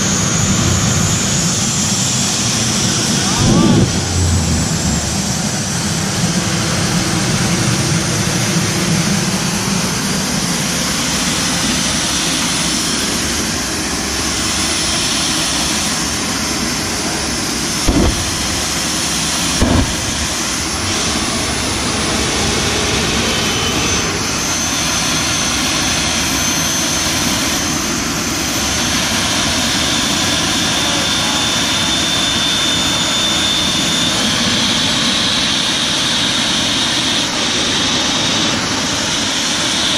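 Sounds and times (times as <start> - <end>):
jet engine idling: 0.0 - 39.9
brief thumps: 17.9 - 18.6, 19.6 - 20.3.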